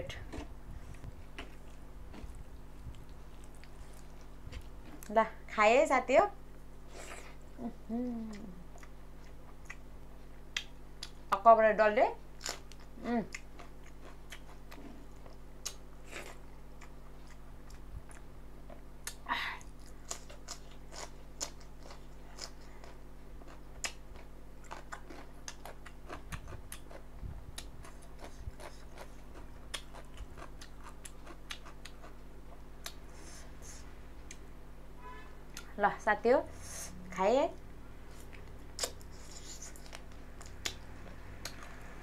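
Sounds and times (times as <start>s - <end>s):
person chewing food: 0.2s - 5.1s, 6.9s - 11.2s, 12.4s - 34.5s, 38.1s - 41.8s.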